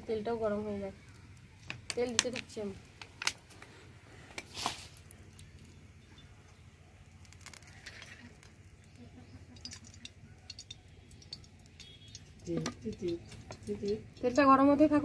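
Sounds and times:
plastic bottle cap crackle: 1.2 - 3.7, 4.3 - 5.8, 7.0 - 14.4
oil trickling into a pan: 4.4 - 14.8.

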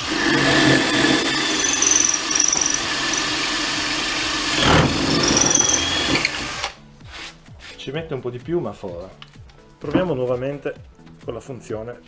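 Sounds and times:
drill boring into brick: 0.0 - 6.8.

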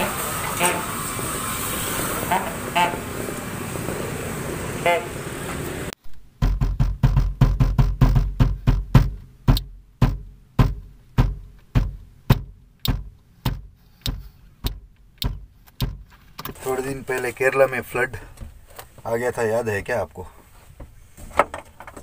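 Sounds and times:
street noise: 0.0 - 22.0
hand knocking on car roof: 6.4 - 16.1.

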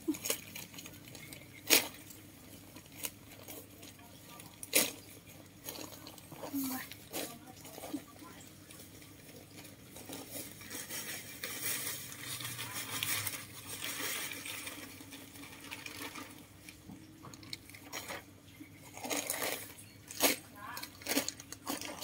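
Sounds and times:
plastic bags rustling: 0.0 - 22.0
loose soil scraping: 0.1 - 16.8.

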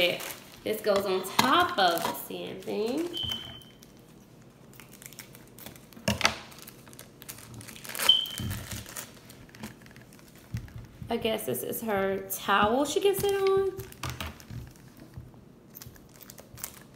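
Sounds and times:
plastic packaging crinkling: 0.0 - 11.0, 13.1 - 16.9
sharp plastic crackles: 4.7 - 11.1, 13.1 - 16.9.

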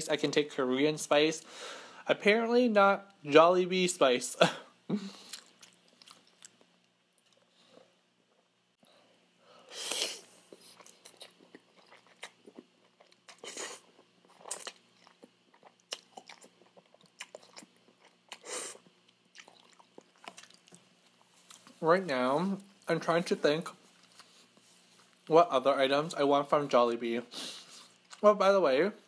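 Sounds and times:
wet chewing and lip smacks: 5.2 - 7.5.

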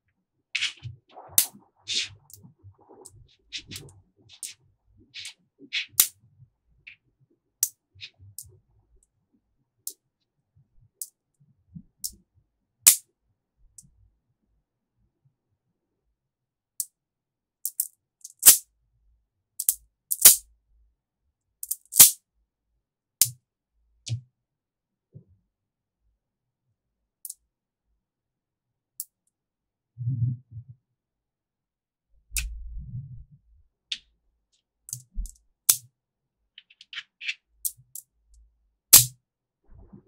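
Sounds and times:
magnetic balls clicking together: 17.7 - 18.6, 34.9 - 35.8.

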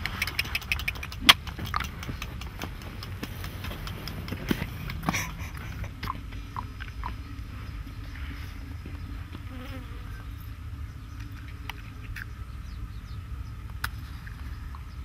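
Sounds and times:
low rumble: 0.0 - 15.0
flies buzzing: 8.1 - 10.3.

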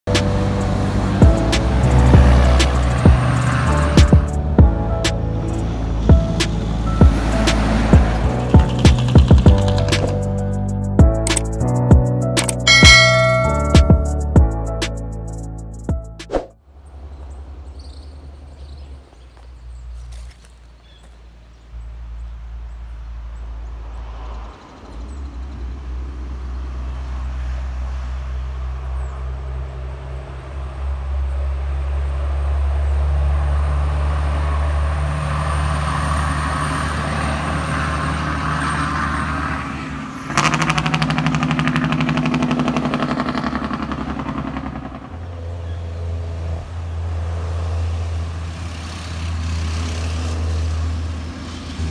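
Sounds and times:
truck diesel engine: 0.1 - 11.8, 25.5 - 51.9
loud fast engine rattling: 40.3 - 45.8.

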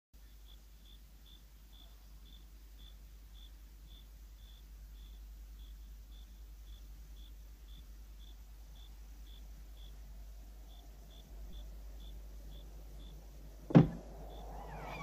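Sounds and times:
crickets chirping: 0.2 - 15.0
sharp knock: 13.7 - 14.1.

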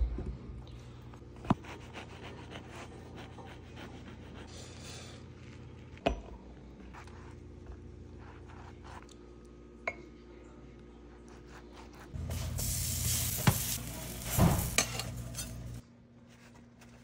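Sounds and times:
knife sawing through bread roll: 1.6 - 4.5.

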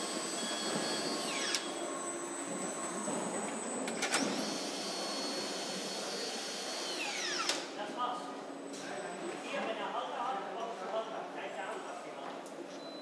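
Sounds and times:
high whining power tool: 0.0 - 7.7.

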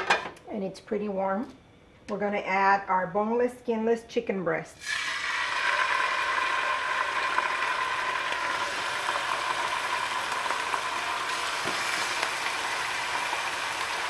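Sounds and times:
chicken sizzling in hot oil: 4.8 - 14.0.

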